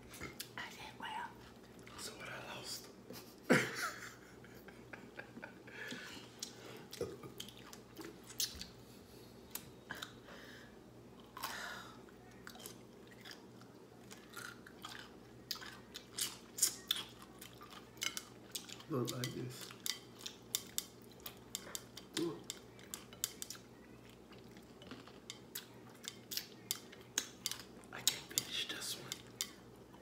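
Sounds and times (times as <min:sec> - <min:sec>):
pickle crunching: 0:12.4 - 0:28.5.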